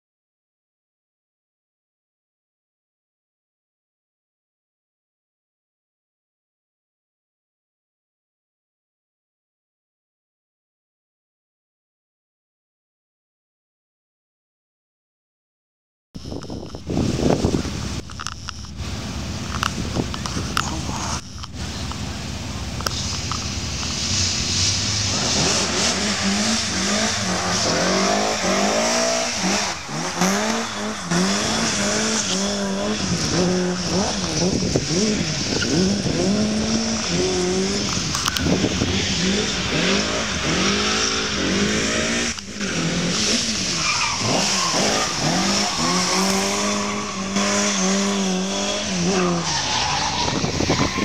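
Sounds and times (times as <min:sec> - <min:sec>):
rally car engine revving: 0:16.3 - 0:51.0
tyre noise hiss: 0:16.4 - 0:51.0.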